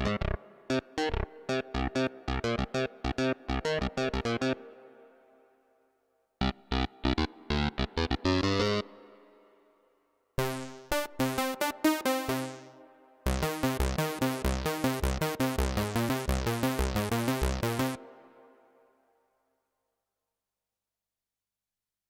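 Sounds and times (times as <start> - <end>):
synthesizer plucked notes: 0.0 - 5.0, 6.4 - 9.3, 10.4 - 18.7.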